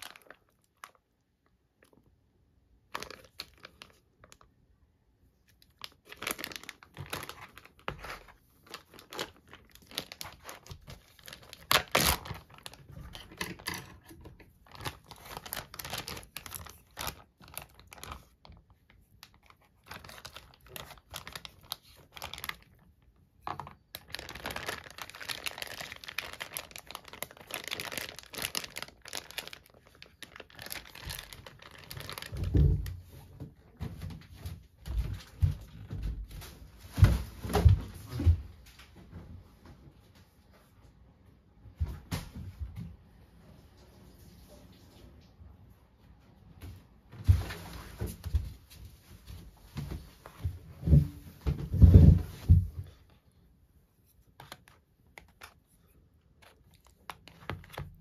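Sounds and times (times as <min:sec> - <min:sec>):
plastic bag crinkling: 0:00.0 - 0:02.2, 0:02.8 - 0:04.6, 0:05.4 - 0:33.3, 0:54.1 - 0:58.0.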